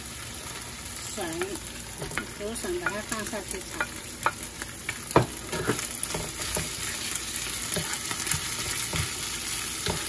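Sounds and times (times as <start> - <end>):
food sizzling in hot oil: 0.0 - 10.0
wooden spatula scraping a pan: 5.4 - 10.0.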